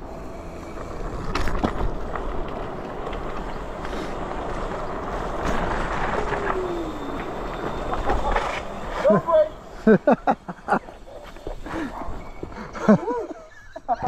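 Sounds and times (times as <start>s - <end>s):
wind and road noise: 0.0s - 14.0s
short falling whine: 3.3s - 13.4s.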